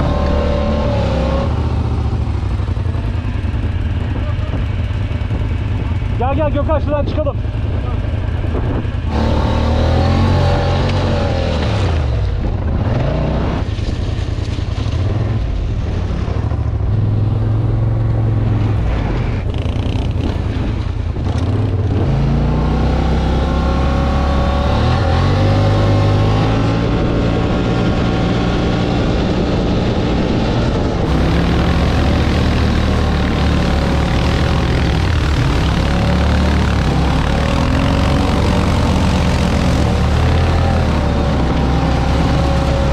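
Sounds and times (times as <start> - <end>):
vehicle engine revving under load: 0.0 - 2.4, 9.1 - 13.7, 21.8 - 42.9.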